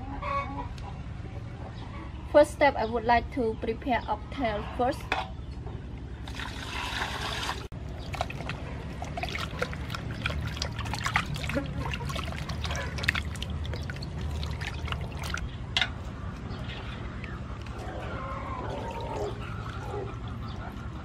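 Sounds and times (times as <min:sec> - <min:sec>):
water splashing and dripping: 0:06.2 - 0:15.6, 0:18.6 - 0:20.6
water pouring into metal basin: 0:06.3 - 0:15.4.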